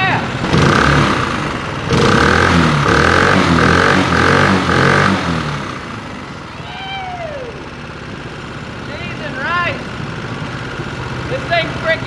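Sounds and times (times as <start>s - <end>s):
small boat motor revving: 0.0s - 8.2s.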